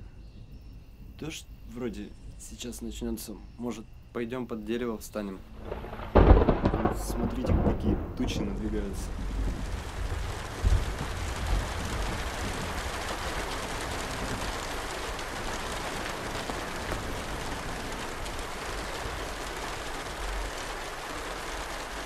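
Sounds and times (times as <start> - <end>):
steady rain: 4.8 - 22.0
low rumble: 5.5 - 20.6.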